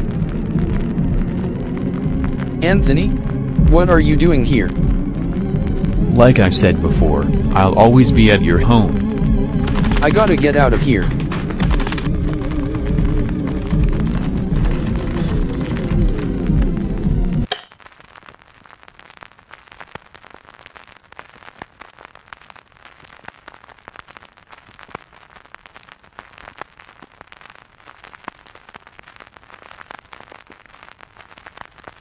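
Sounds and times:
faint crackling hiss: 17.7s - 32.0s.

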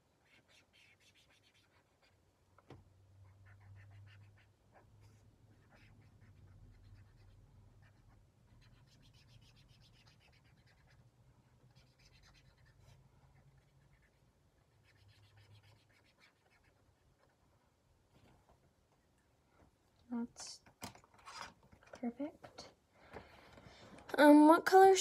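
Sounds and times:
marker scratching on paper: 0.1s - 2.2s, 3.2s - 17.4s.

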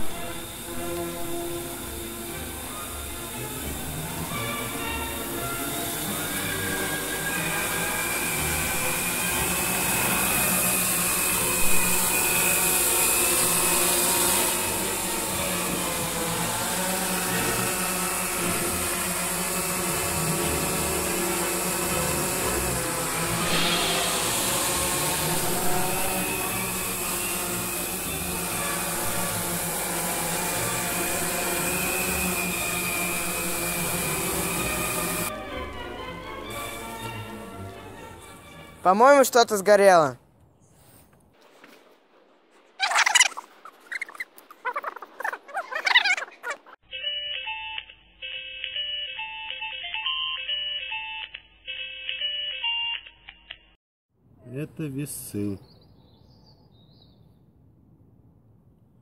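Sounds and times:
propeller wash rushing: 0.0s - 35.6s
drone motors whining: 0.0s - 38.6s, 42.8s - 46.8s.

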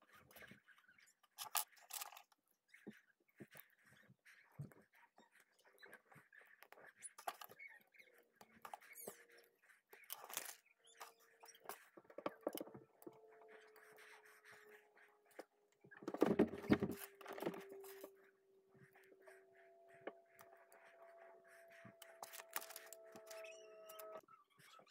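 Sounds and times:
plastic clicks and rubbing: 21.9s - 24.2s.

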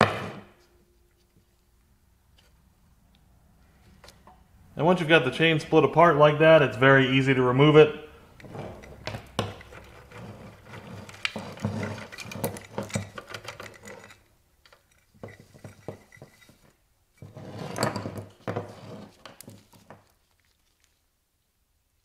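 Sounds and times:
metal chain links clinking: 8.4s - 16.7s.

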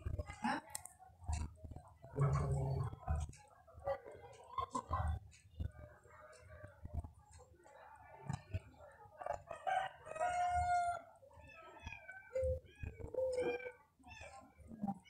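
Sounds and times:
rooster crowing: 9.5s - 11.1s.

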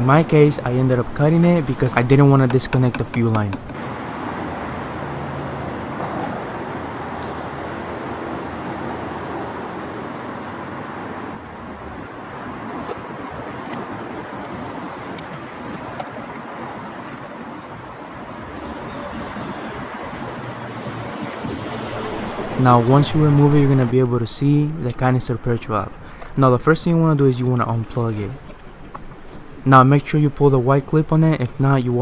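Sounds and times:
steady rushing noise: 3.7s - 27.4s.

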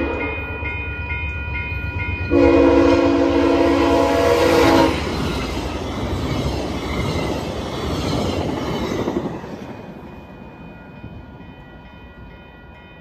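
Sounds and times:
crossing warning bell ringing: 0.0s - 5.7s, 9.1s - 13.0s
train wheel and rail noise: 0.0s - 13.0s.

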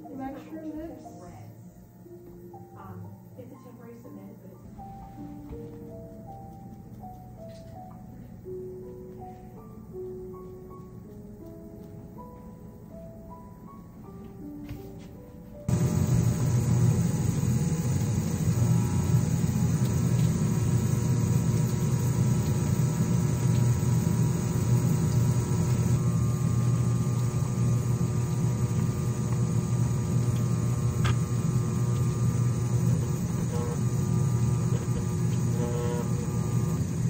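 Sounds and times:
vibrator machine humming: 15.6s - 37.0s.

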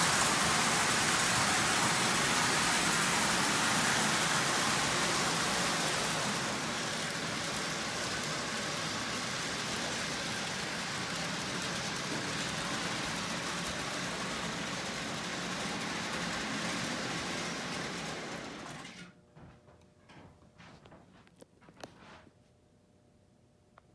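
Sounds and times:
toy train rumbling clatter: 0.0s - 19.1s.

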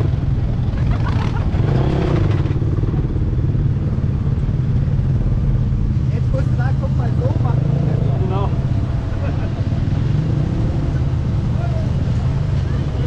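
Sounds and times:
smaller engine revving: 0.0s - 3.1s, 7.0s - 13.0s.

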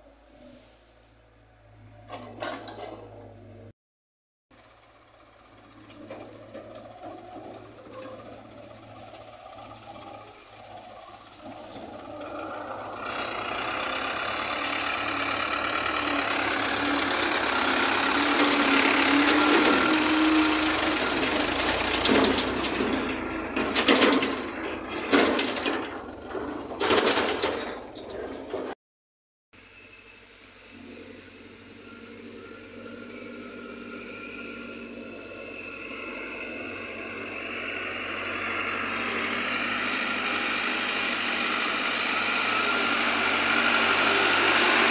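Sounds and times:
diesel tractor engine running: 4.6s - 28.8s, 29.6s - 44.9s
loud clattering knocks: 21.4s - 28.7s.

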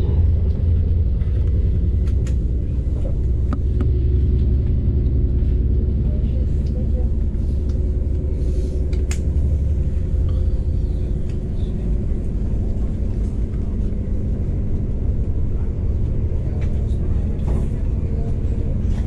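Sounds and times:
train rumbling on rails: 0.0s - 19.0s.

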